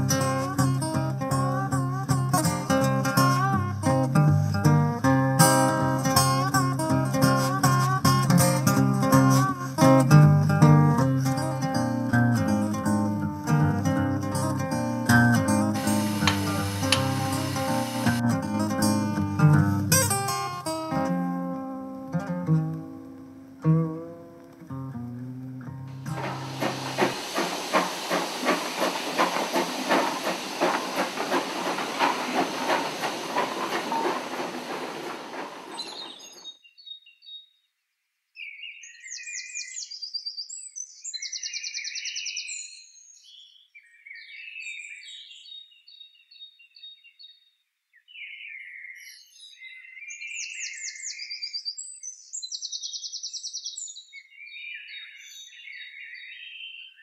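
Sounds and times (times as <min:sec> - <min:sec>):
steam locomotive hissing: 0:15.1 - 0:18.3, 0:25.9 - 0:36.4
songbirds singing: 0:26.1 - 0:37.7, 0:38.4 - 0:57.0.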